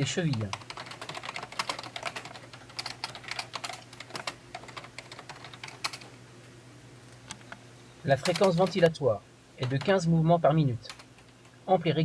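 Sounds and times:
computer keyboard typing: 0.0s - 6.1s, 8.1s - 9.0s, 9.6s - 10.0s, 10.8s - 11.4s.

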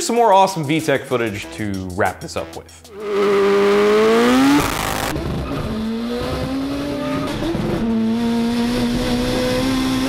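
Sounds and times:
car engine revving hard: 2.9s - 10.0s.

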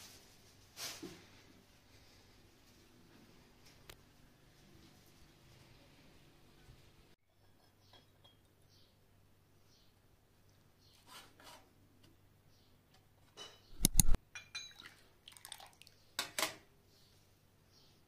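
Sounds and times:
tea cups clinking on metal tray: 14.3s - 14.9s.

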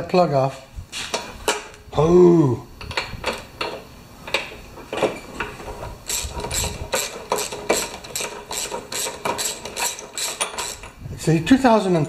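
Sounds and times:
ratchet wrench clicking: 6.1s - 10.9s.

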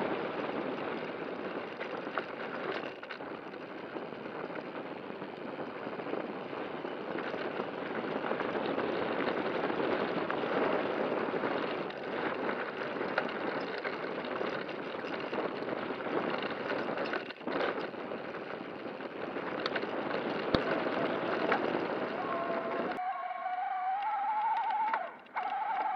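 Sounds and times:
bike knocking and rattling: 0.0s - 23.0s, 24.4s - 25.9s
tyres rolling on dirt and gravel: 0.0s - 25.9s.

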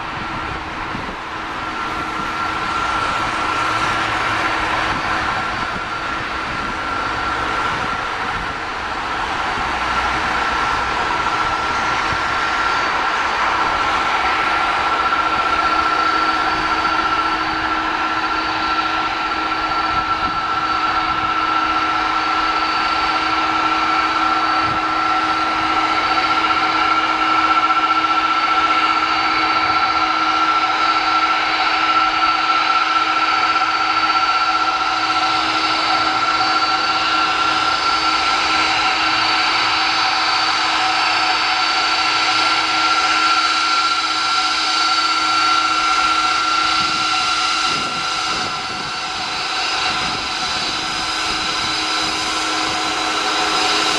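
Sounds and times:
jet engine whine: 0.0s - 53.9s.

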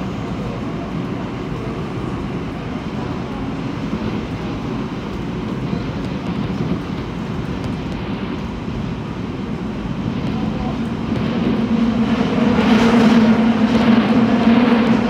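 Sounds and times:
subway train rumbling in tunnel: 0.0s - 15.0s.

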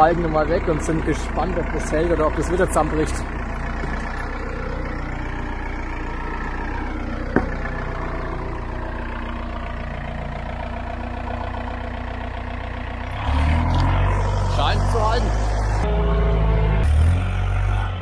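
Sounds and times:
engine idling: 0.0s - 18.0s
sharp knock: 7.4s - 7.6s.

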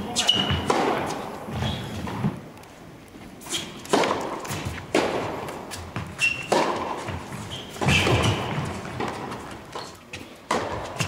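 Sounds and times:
shoe squeaks: 0.1s - 0.7s, 1.5s - 2.0s, 3.4s - 3.9s, 5.7s - 8.8s
tennis ball hits: 0.3s - 1.2s, 3.8s - 9.6s, 10.4s - 11.0s.

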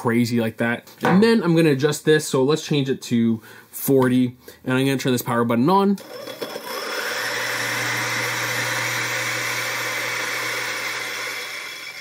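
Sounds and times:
coffee grinder motor hum: 6.0s - 12.0s.

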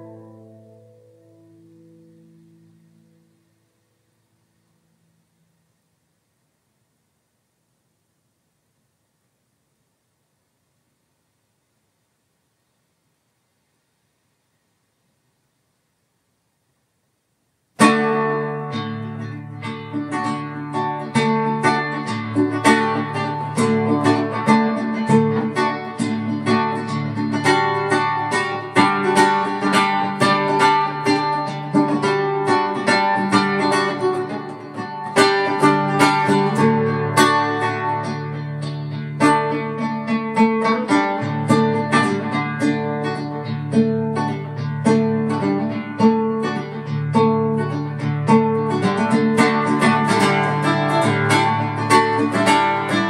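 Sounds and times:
guitar playing: 0.0s - 3.5s, 17.8s - 53.0s.

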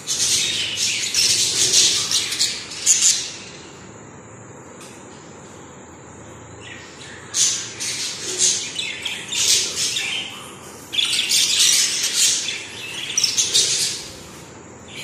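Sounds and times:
budgerigars chattering and squawking: 0.0s - 3.6s, 6.7s - 15.0s.

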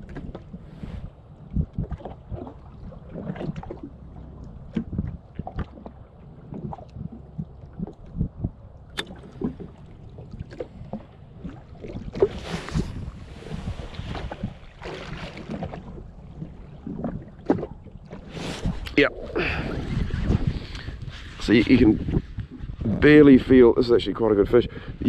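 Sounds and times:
wind noise on microphone: 0.0s - 3.8s, 4.6s - 25.0s
waves lapping against hull: 0.0s - 25.0s.

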